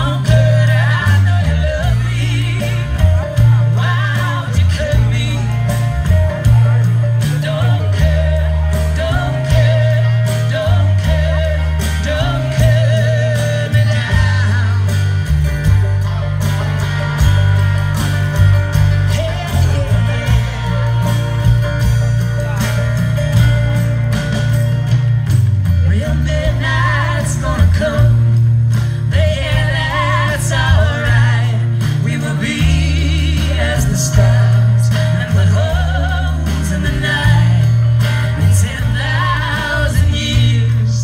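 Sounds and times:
person singing: 0.0 - 15.3, 25.8 - 41.0
guitars and banjo: 0.0 - 41.0
heavy bass notes: 0.0 - 41.0.

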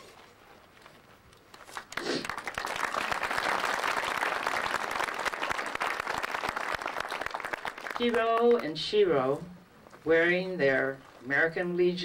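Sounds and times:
audience applause: 1.5 - 8.2.

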